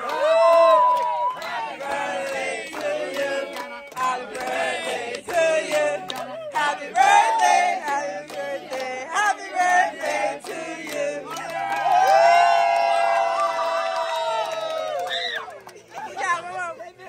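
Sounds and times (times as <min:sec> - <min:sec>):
crowd hubbub: 0:00.0 - 0:13.7, 0:14.6 - 0:17.0
group singing and chanting: 0:00.9 - 0:12.1.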